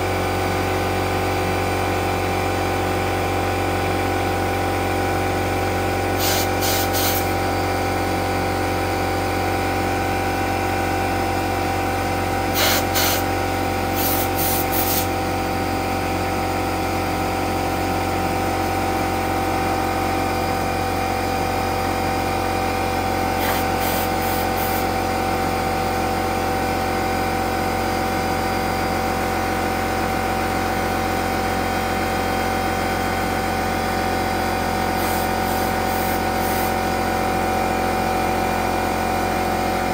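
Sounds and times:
air compressor running: 0.0 - 39.9
compressed air blow gun hissing: 6.2 - 7.3, 12.5 - 13.3, 14.0 - 15.1, 23.4 - 24.9, 35.0 - 36.8.

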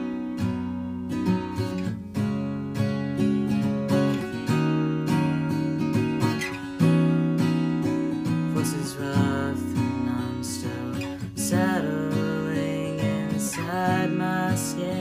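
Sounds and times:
acoustic guitar strumming: 0.0 - 15.0
person singing softly: 8.5 - 15.0.

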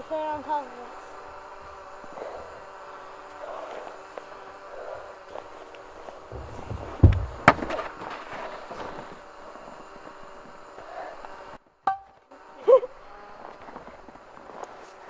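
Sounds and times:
drone hovering hum: 0.0 - 14.4
sharp knocks: 6.3 - 7.9.

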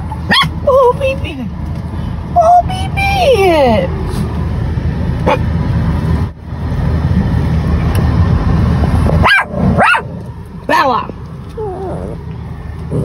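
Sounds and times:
small dog yipping: 0.1 - 0.6, 5.2 - 5.5
low rumble: 1.2 - 13.0.

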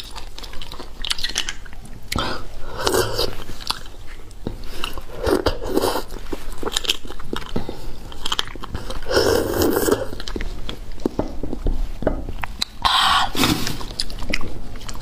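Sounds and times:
wet sucking and chewing: 0.0 - 15.0
slurping: 1.0 - 6.9, 7.7 - 10.5, 12.9 - 15.0.

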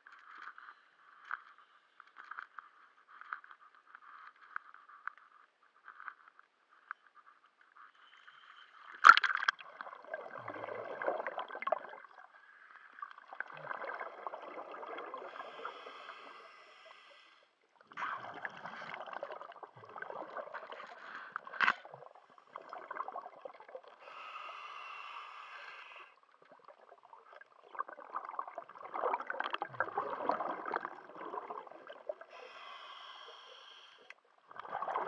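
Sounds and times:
faint crackling and clicking: 0.0 - 9.6
gurgling exhaust bubbles: 27.8 - 32.2.

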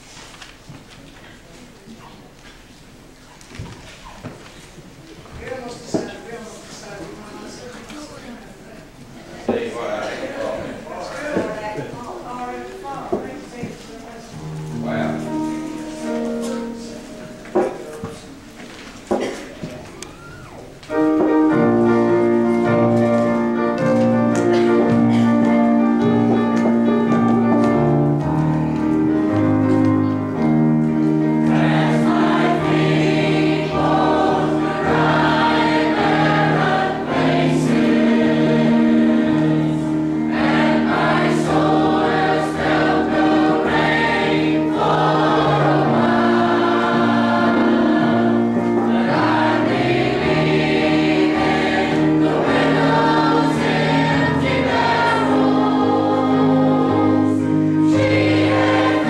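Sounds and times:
choir singing a hymn: 14.3 - 18.5, 20.9 - 59.0
long held accompaniment chords: 14.3 - 18.6, 19.2 - 59.0.

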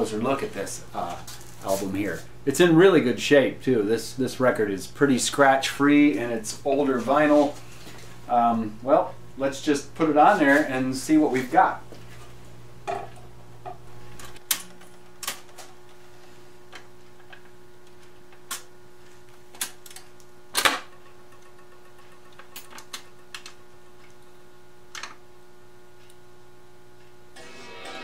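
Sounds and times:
amplifier hum: 23.5 - 28.0.

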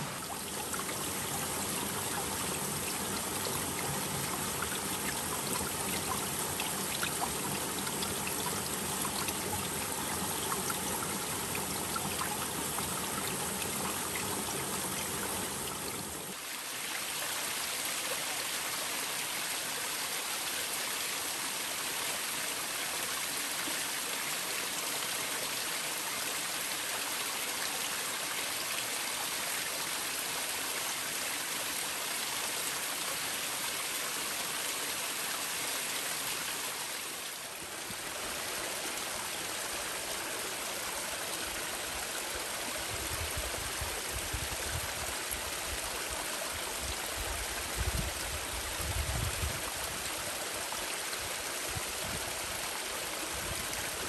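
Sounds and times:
water rushing over rocks: 0.0 - 17.2.

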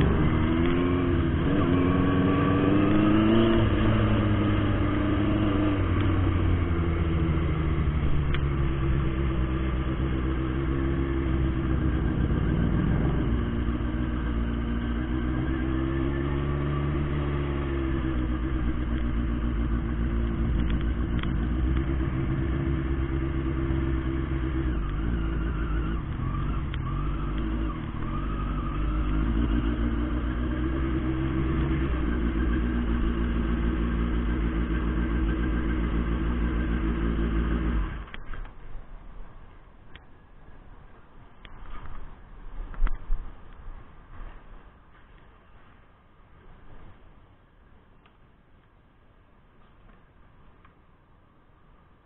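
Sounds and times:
motorcycle engine running: 0.0 - 38.5.

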